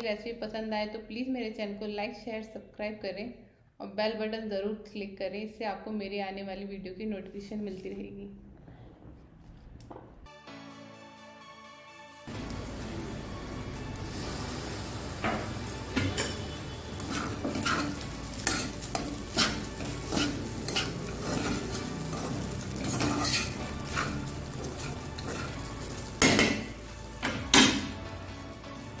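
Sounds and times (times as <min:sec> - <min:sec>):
steady sizzle: 0:12.3 - 0:29.0
spatula scraping in pan: 0:14.2 - 0:26.8.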